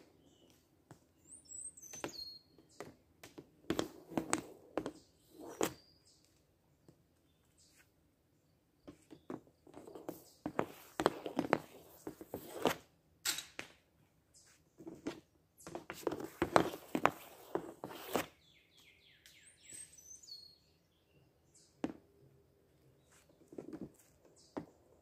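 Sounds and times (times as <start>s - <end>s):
bird chirping: 1.2s - 2.9s, 4.9s - 6.4s, 18.3s - 21.8s
stick scraping on shooting pad: 3.6s - 5.9s, 8.9s - 12.9s, 14.8s - 18.3s.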